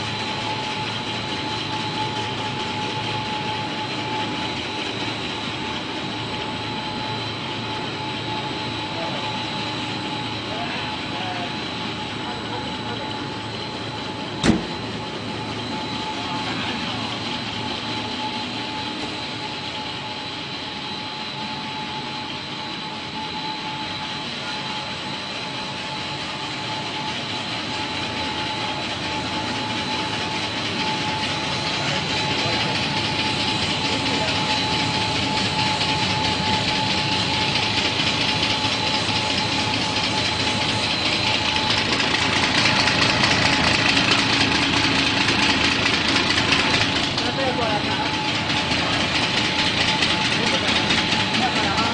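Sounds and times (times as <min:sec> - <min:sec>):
factory machinery din: 0:00.0 - 0:51.9
steady high whine: 0:00.0 - 0:51.9.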